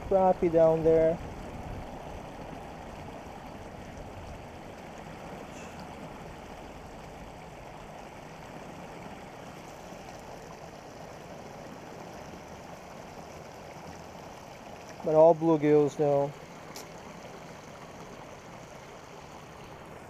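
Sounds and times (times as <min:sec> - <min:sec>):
water rushing over a weir: 0:00.0 - 0:20.0.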